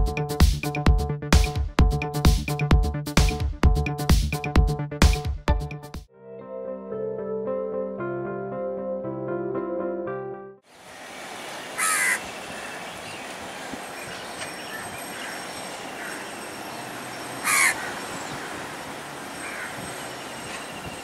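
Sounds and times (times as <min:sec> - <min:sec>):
birds chirping: 0:10.8 - 0:21.0
crow cawing: 0:11.8 - 0:12.8, 0:15.1 - 0:16.5, 0:17.4 - 0:19.9.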